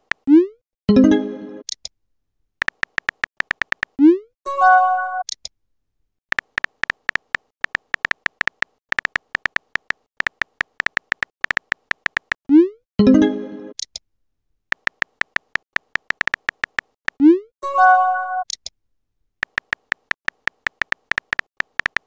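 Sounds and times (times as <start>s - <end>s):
keyboard tap clicks: 2.6s - 4.0s, 6.3s - 12.4s, 14.7s - 17.2s, 19.4s - 22.0s.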